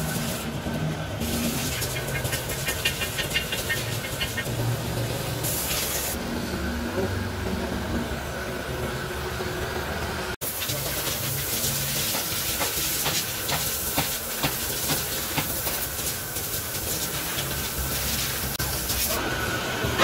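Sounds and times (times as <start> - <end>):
welding torch flame hissing: 5.4 - 6.2, 10.4 - 20.0.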